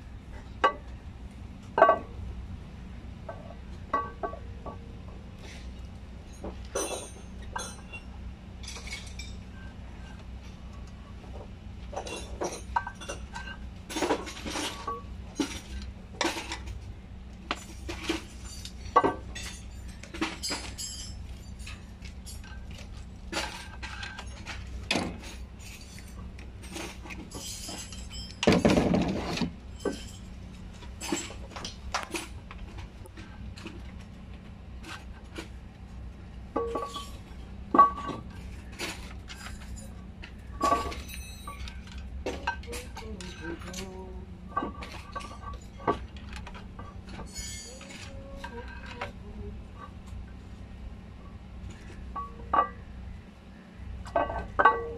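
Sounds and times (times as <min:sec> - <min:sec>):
steady low hum: 0:00.0 - 0:54.9
tools and metal parts clinking: 0:01.8 - 0:02.1, 0:03.3 - 0:54.9.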